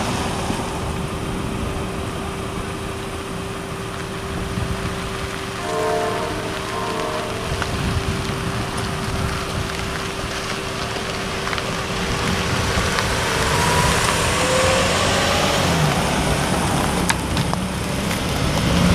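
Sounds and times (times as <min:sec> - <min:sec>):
diesel locomotive rumbling: 0:00.0 - 0:18.9.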